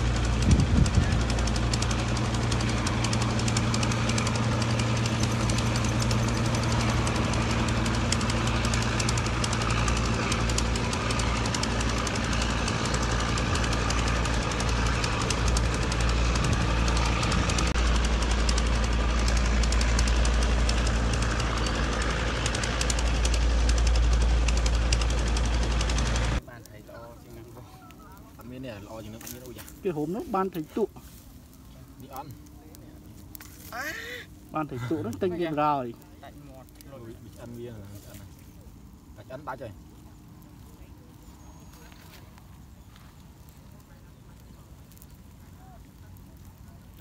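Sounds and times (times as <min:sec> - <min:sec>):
engine idling with knocking: 0:00.0 - 0:26.4.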